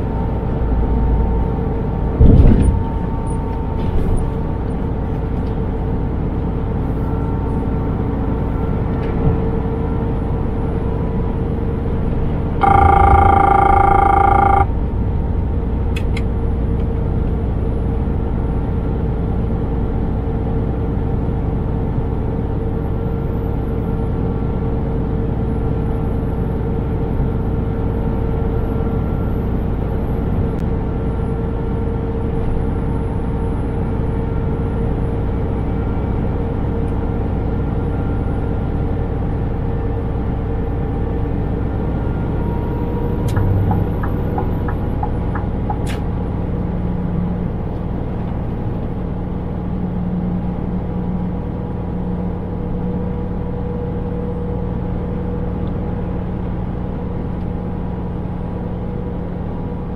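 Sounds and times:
truck engine and road rumble: 0:00.0 - 0:59.9
loud multi-pitch horn: 0:12.6 - 0:14.6.

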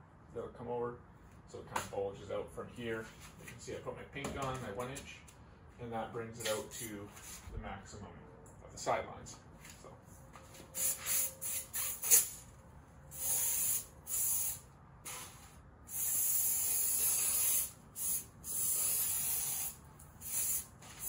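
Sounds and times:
spray gun hissing spurts: 0:10.8 - 0:12.4, 0:13.1 - 0:21.0.

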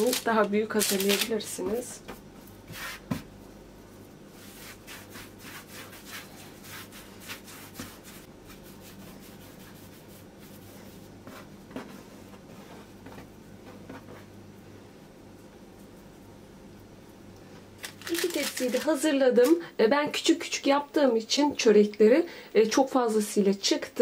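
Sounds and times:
hands rubbing dough on board: 0:04.0 - 0:14.4.

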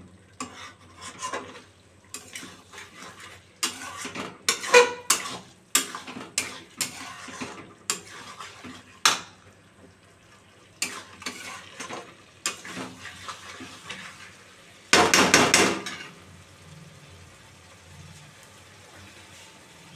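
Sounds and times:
frying sizzle: 0:00.0 - 0:19.9
spatula scraping metal pan: 0:00.4 - 0:09.0, 0:10.8 - 0:14.4.

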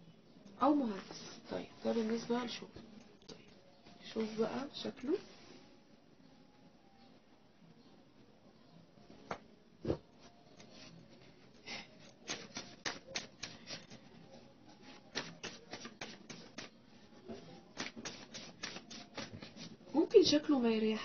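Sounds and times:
cards being shuffled: 0:12.2 - 0:13.9, 0:14.9 - 0:16.8, 0:17.7 - 0:19.8.

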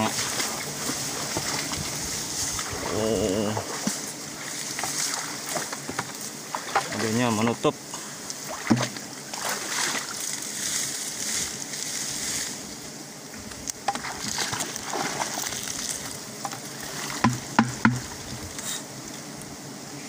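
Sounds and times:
bees buzzing: 0:00.0 - 0:20.0
sharp knocks: 0:17.2 - 0:18.1.

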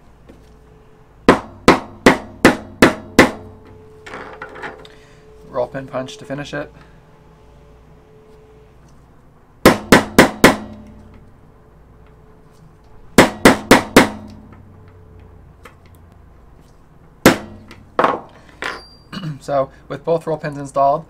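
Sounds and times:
hammer tapping metal punch: 0:01.3 - 0:03.6, 0:09.7 - 0:11.1, 0:13.2 - 0:14.6.

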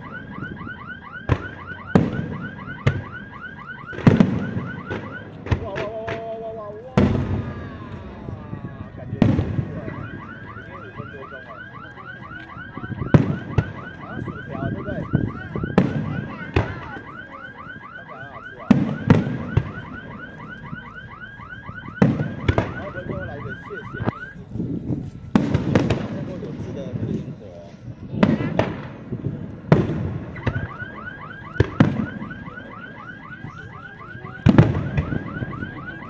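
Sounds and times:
car alarm chirping: 0:00.0 - 0:05.8, 0:09.8 - 0:24.4, 0:30.2 - 0:36.0
fireworks bangs: 0:00.0 - 0:11.6, 0:12.3 - 0:21.0, 0:21.6 - 0:36.0.

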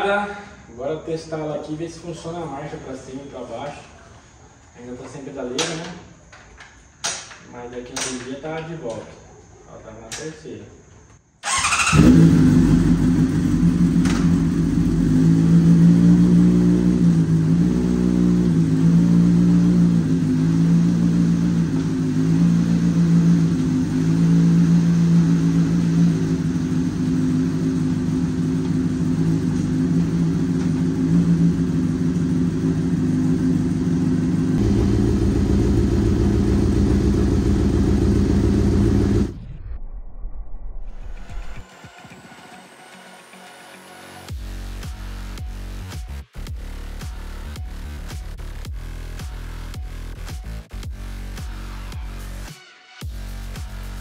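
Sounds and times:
motorcycle engine running: 0:11.5 - 0:39.4.

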